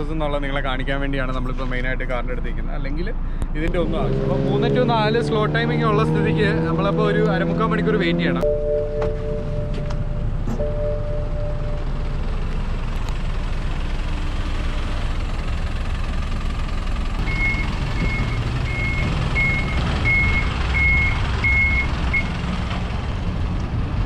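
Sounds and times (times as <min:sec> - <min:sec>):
truck engine running: 0:04.6 - 0:24.0
reversing alarm beeps: 0:08.4 - 0:12.0, 0:17.3 - 0:22.3.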